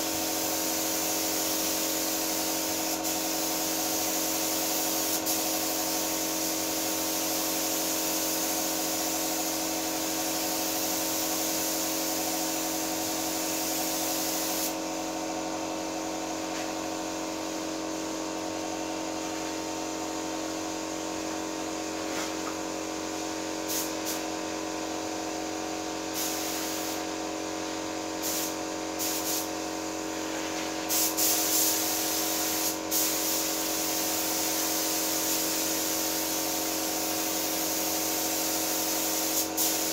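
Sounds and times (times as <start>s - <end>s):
spray gun hissing: 0.1s - 14.9s, 23.6s - 24.2s, 26.2s - 27.1s, 28.2s - 29.6s, 30.2s - 39.9s.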